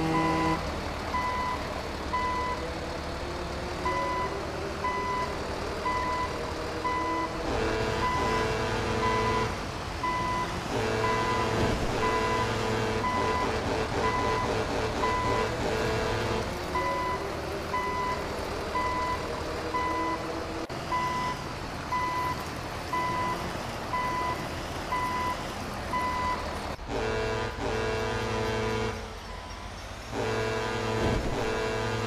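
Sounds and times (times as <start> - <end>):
vehicle reversing alarm beeping: 0.0 - 2.7, 3.8 - 7.4, 8.0 - 15.6, 16.8 - 20.3, 20.9 - 26.4, 29.2 - 29.8.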